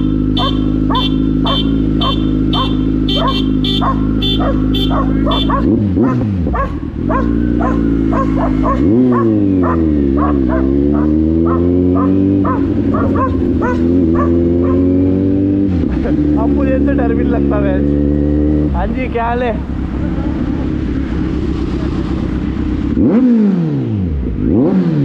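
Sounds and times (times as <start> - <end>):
motorcycle engine revving: 0.0 - 25.0
dogs barking: 0.3 - 15.0.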